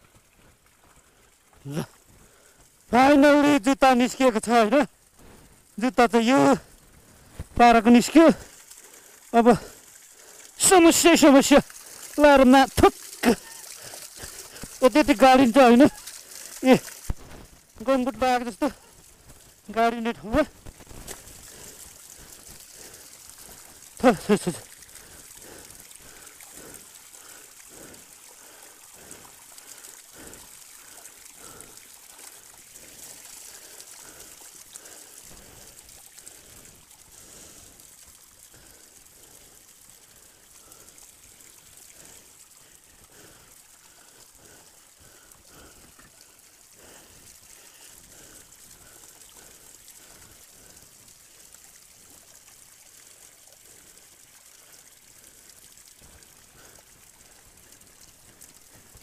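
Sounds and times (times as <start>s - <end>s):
water trickling: 0.0s - 59.0s
soft splashes: 6.6s - 17.9s.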